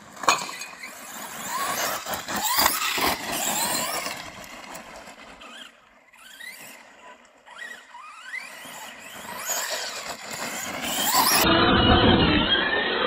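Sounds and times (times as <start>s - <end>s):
tyres on dirt: 0.0s - 13.0s
electric motor whining: 0.9s - 13.0s.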